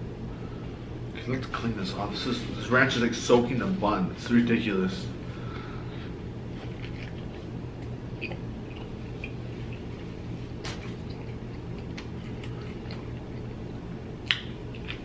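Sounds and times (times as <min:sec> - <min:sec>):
steady low hum: 0:00.0 - 0:15.0
close-up chewing and mouth sounds: 0:06.5 - 0:15.0.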